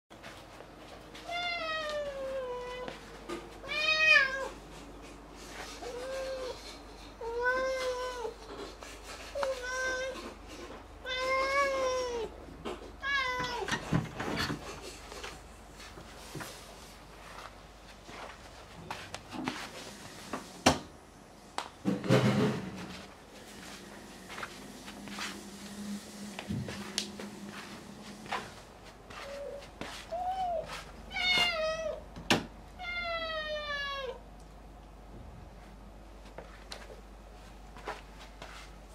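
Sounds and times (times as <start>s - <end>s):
cat meowing: 3.6s - 4.6s, 32.8s - 34.2s.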